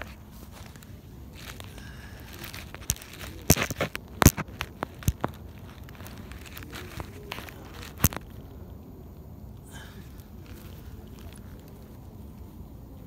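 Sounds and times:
phone handling clicks and crackles: 0:00.0 - 0:08.4.

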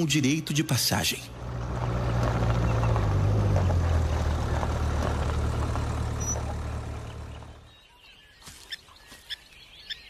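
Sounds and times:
vehicle engine humming: 0:00.0 - 0:08.1.

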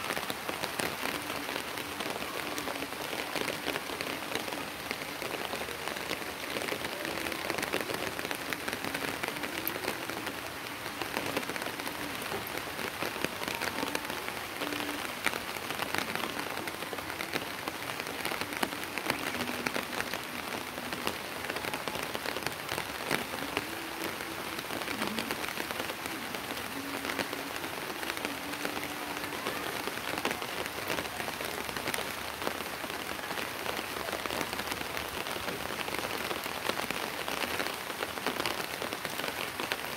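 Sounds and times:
rain on concrete roof: 0:00.0 - 0:39.9.

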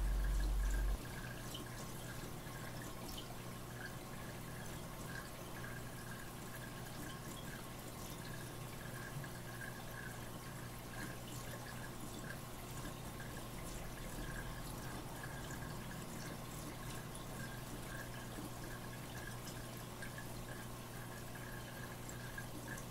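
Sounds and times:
low rumble: 0:00.0 - 0:01.0
steady low hum: 0:00.0 - 0:01.4
aquarium water trickling: 0:00.0 - 0:22.9.

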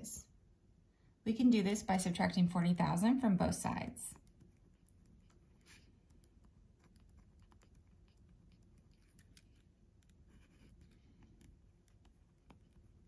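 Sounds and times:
pen writing on paper: 0:05.1 - 0:13.0.

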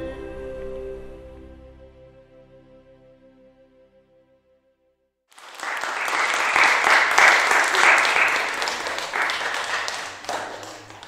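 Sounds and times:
audience applauding: 0:05.3 - 0:11.0.

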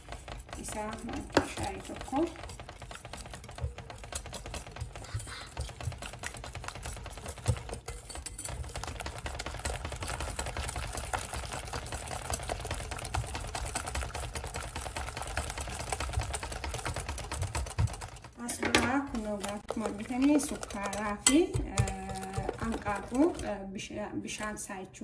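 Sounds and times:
whisk ticking against glass bowl: 0:00.0 - 0:23.7.

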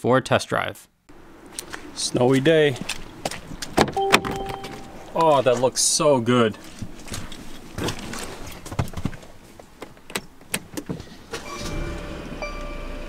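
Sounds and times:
car warning chime: 0:04.0 - 0:05.7, 0:11.4 - 0:13.0
low steady hum: 0:04.0 - 0:08.6.

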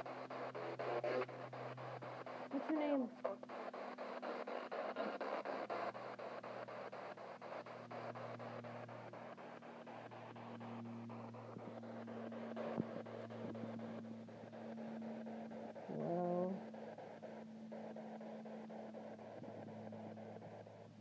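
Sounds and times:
radio static with rapid ticks: 0:00.0 - 0:21.0
steady hum: 0:00.0 - 0:21.0.

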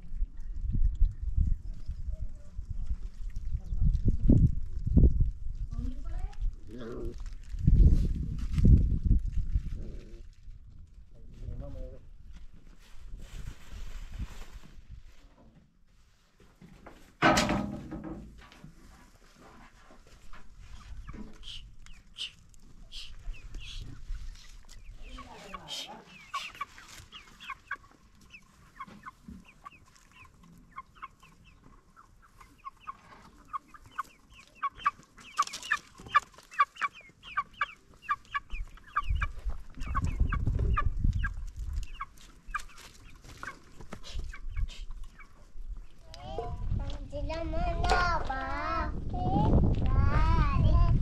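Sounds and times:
chickens clucking: 0:20.2 - 0:48.9.

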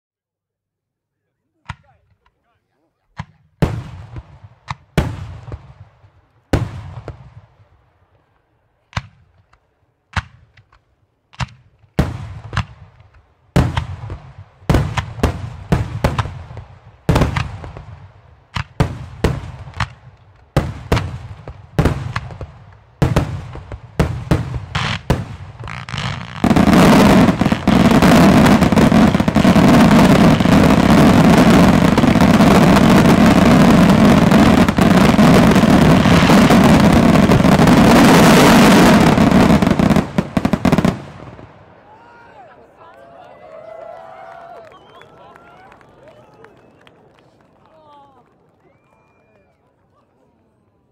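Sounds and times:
fireworks barrage crackling: 0:01.5 - 0:42.2.

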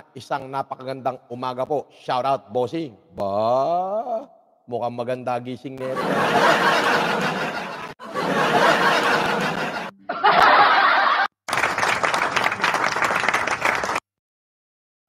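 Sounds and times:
man laughing hard: 0:05.8 - 0:11.3.

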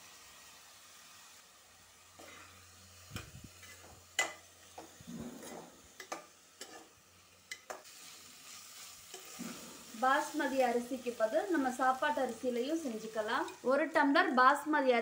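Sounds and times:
oil sizzling faintly: 0:00.0 - 0:15.0
spatula scraping rice in pot: 0:04.8 - 0:06.9.

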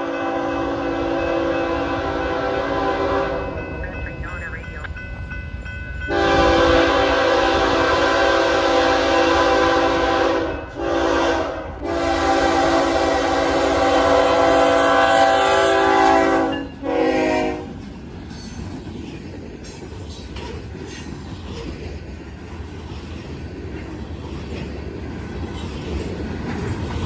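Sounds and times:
locomotive air horn blasts: 0:00.0 - 0:03.6, 0:06.1 - 0:17.7
freight train rumbling past: 0:00.0 - 0:27.0.

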